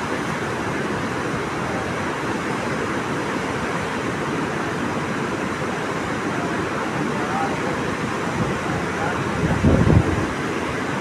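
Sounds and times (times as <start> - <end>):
waterfall rushing over rocks: 0.0 - 11.0.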